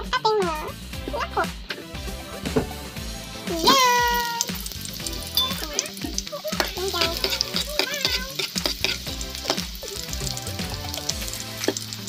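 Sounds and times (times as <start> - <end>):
garlic sizzling in oil: 0.7 - 12.0
spatula scraping wok: 3.0 - 12.0.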